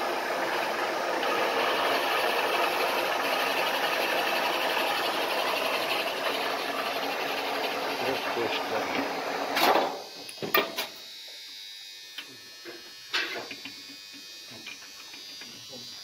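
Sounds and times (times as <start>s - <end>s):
milling machine boring metal: 0.0s - 9.6s.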